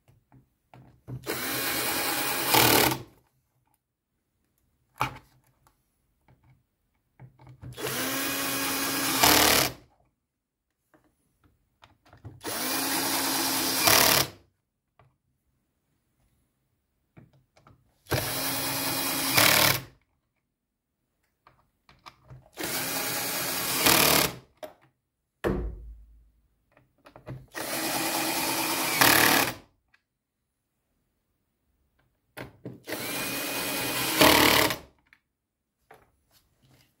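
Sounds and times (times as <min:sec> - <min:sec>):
cordless drill motor whine: 0:01.3 - 0:02.9, 0:07.8 - 0:09.7, 0:12.4 - 0:14.2, 0:18.2 - 0:19.8, 0:22.6 - 0:24.3, 0:27.6 - 0:29.5, 0:32.9 - 0:34.8
short thump: 0:25.4 - 0:26.2.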